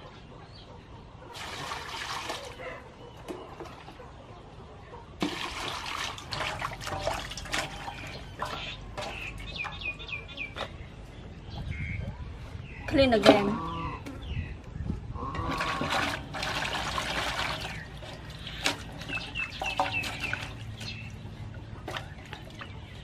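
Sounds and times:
water splashing and trickling: 0:01.3 - 0:04.0, 0:05.2 - 0:10.7, 0:15.2 - 0:23.0.

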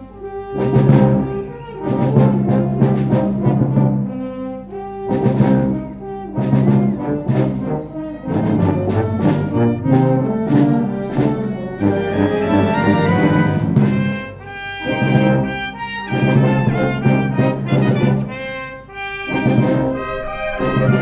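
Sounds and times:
wind band brass chords: 0:00.0 - 0:21.0
percussion hits: 0:08.5 - 0:14.3, 0:19.2 - 0:21.0.

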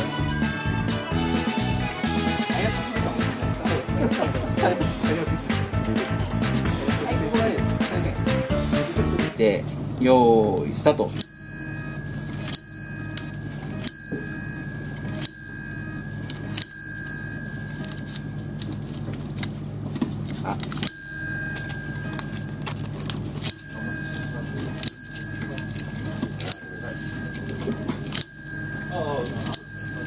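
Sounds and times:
ticket dispenser click and ding: 0:11.0 - 0:19.7, 0:20.7 - 0:30.0.

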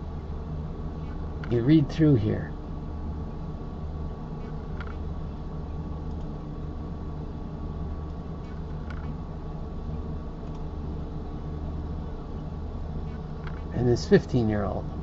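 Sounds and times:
low machine hum: 0:00.0 - 0:15.0
faint mouse clicks: 0:06.0 - 0:06.3.

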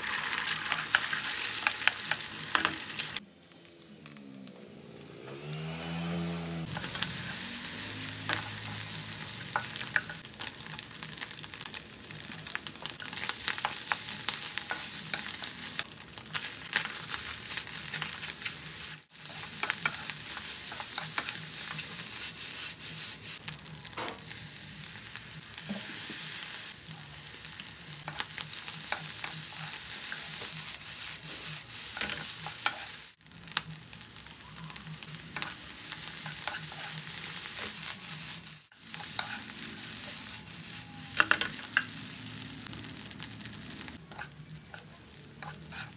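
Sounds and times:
rice sizzling in oil: 0:00.0 - 0:45.9
spatula clicking and scraping pan: 0:12.8 - 0:15.8, 0:19.2 - 0:22.0, 0:28.0 - 0:30.8, 0:31.4 - 0:33.0, 0:35.3 - 0:37.9, 0:38.9 - 0:39.6, 0:44.0 - 0:45.9.

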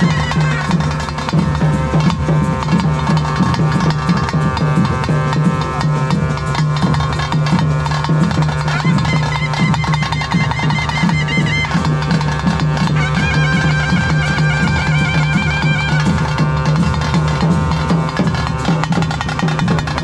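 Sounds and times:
drums beaten with sticks: 0:00.0 - 0:20.0
wind instrument melody: 0:00.0 - 0:20.0.

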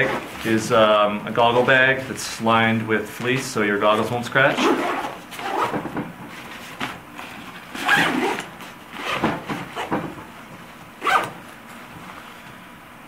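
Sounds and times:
nylon fabric rustling and scraping: 0:00.0 - 0:02.4, 0:03.0 - 0:12.4.

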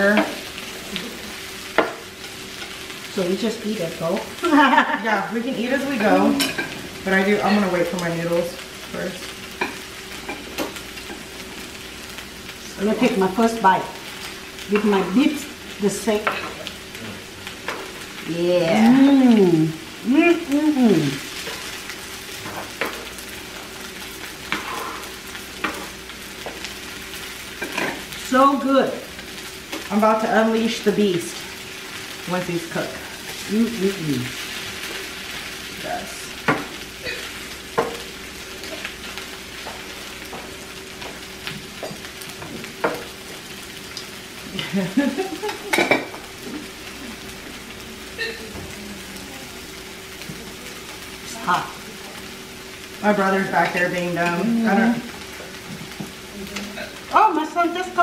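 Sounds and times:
food sizzling on a grill: 0:00.0 - 0:58.0
person humming mmm: 0:48.2 - 0:49.1.

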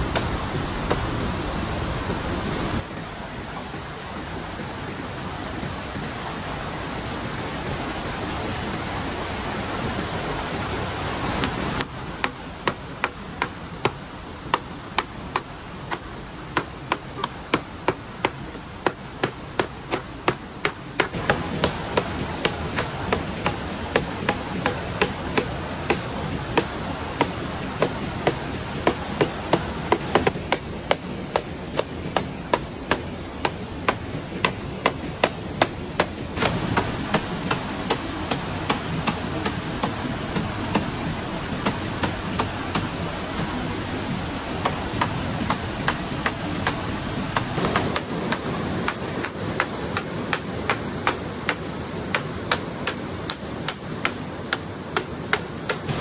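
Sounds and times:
rapid chopping strikes: 0:11.4 - 0:40.9, 0:47.4 - 0:56.0.

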